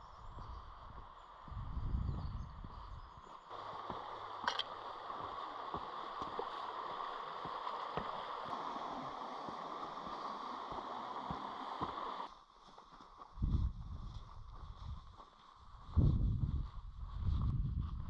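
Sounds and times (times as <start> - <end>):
river rushing over rocks: 3.5 - 12.3.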